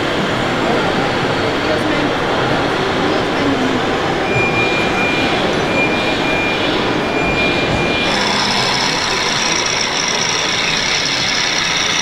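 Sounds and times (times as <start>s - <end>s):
exhibition hall din: 0.0s - 12.0s
high electronic tone: 4.3s - 12.0s
high whine: 4.3s - 12.0s.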